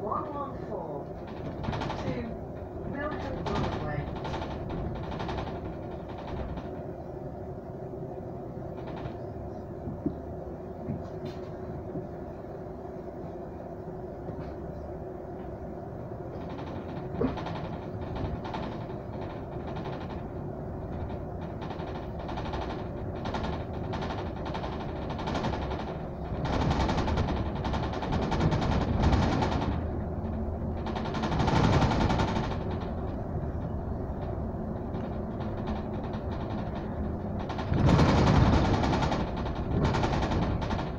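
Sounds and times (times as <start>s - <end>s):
bus engine and road rumble: 0.0s - 40.9s
bodywork rattling: 1.1s - 7.2s, 16.2s - 40.9s.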